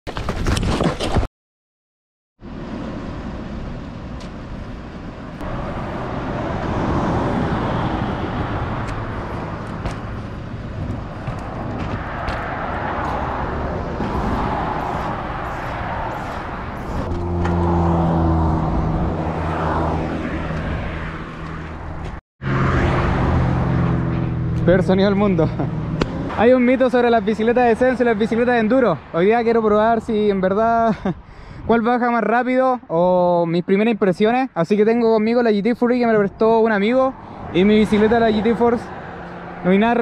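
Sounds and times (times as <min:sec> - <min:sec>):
road traffic: 0:02.4 - 0:40.0
wind on microphone: 0:10.8 - 0:22.0.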